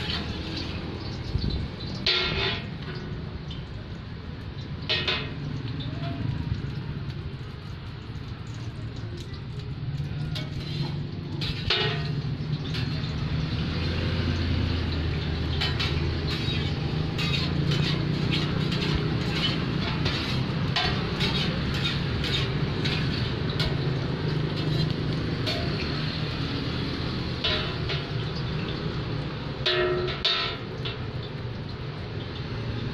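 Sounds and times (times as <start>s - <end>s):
oil sizzling: 0.0s - 32.9s
metal spatulas clinking on pan: 2.0s - 2.7s, 4.9s - 6.3s, 10.2s - 13.2s, 14.9s - 26.1s, 27.4s - 28.5s, 29.6s - 31.1s.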